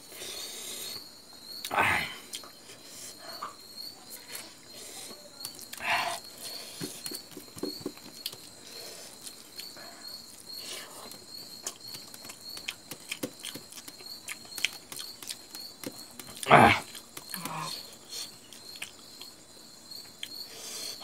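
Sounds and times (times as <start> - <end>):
chewing: 2.2 - 19.4.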